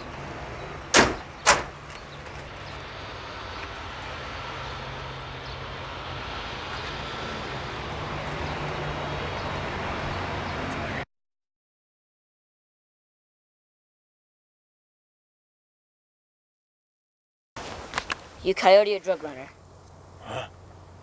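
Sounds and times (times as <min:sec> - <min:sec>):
truck doors slamming: 0:00.9 - 0:02.4.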